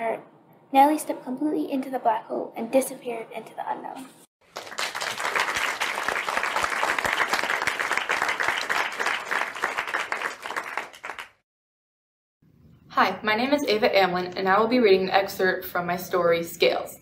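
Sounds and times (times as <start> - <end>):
many hands clapping: 4.4 - 11.4.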